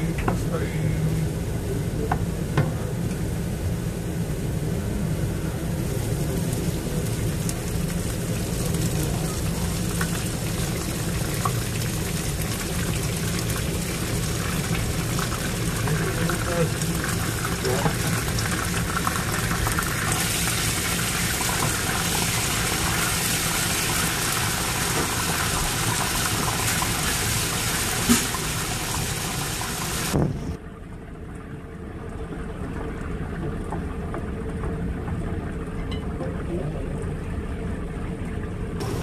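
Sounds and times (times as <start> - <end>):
faint steady hum: 0.0 - 39.0
garlic sizzling in hot oil: 5.6 - 30.6.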